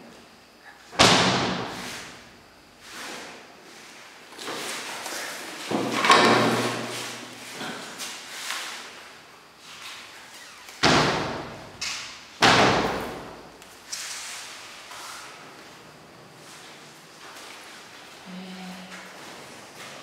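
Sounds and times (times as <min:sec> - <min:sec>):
cupboard doors slamming shut: 0:01.0 - 0:01.8.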